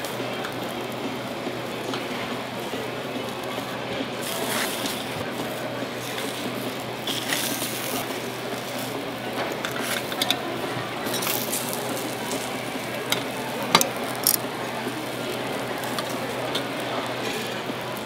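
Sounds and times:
food sizzling in griddle pan: 0:07.0 - 0:18.0
metal tongs clicking on pan: 0:13.1 - 0:14.4.

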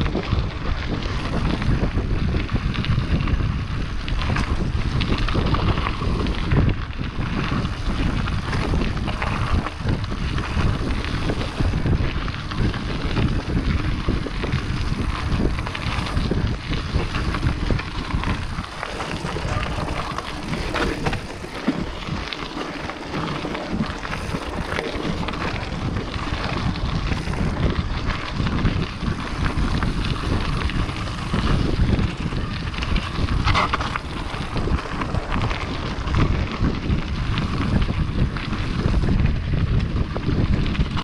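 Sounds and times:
bike rattling over bumps: 0:00.0 - 0:41.0
tyres crunching on gravel: 0:00.0 - 0:41.0
wind noise on microphone: 0:00.0 - 0:41.0.

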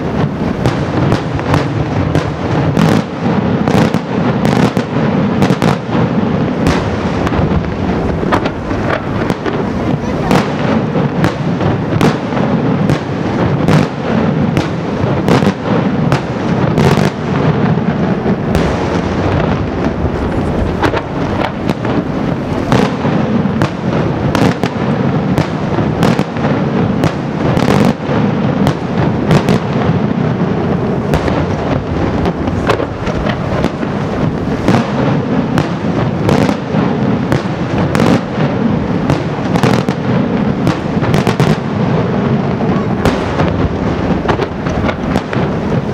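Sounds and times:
fireworks bursting: 0:00.0 - 0:45.9
steady rumble: 0:19.1 - 0:22.6.

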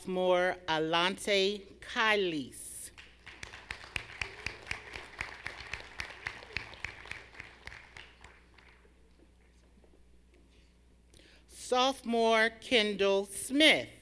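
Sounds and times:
scattered applause in a hall: 0:02.9 - 0:09.1.

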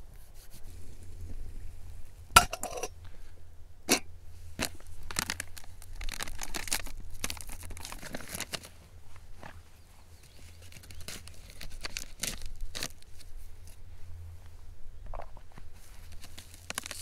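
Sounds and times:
packet crinkling and rustling: 0:04.6 - 0:08.8, 0:10.2 - 0:13.8, 0:15.8 - 0:17.0.

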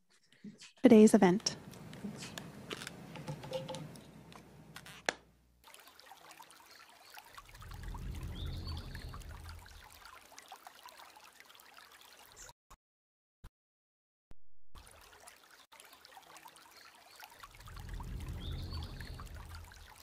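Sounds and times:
clicks and rustling: 0:01.7 - 0:05.2
low rumble with faint hiss: 0:07.5 - 0:10.0, 0:17.5 - 0:20.0.

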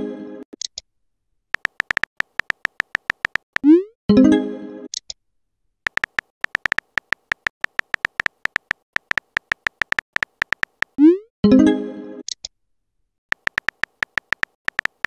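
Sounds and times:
keyboard tap clicks: 0:01.6 - 0:03.7, 0:05.9 - 0:11.0, 0:13.3 - 0:15.0.

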